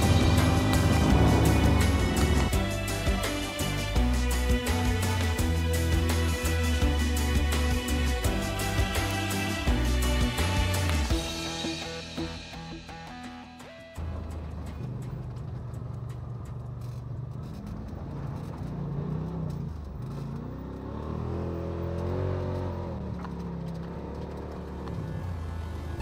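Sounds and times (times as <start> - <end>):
vehicle engine revving: 0.0 - 12.3, 14.0 - 26.0.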